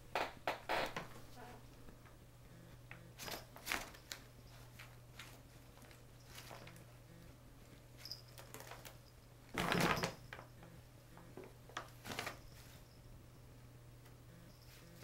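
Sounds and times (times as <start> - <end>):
paper bag rustling and crinkling: 3.2 - 6.8, 8.0 - 10.4, 11.8 - 12.8.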